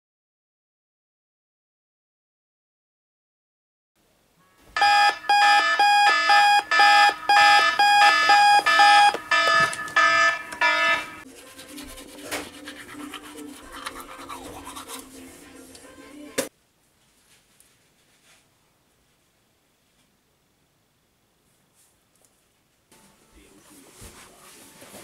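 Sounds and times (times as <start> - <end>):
alarm clock beeping: 4.8 - 11.2.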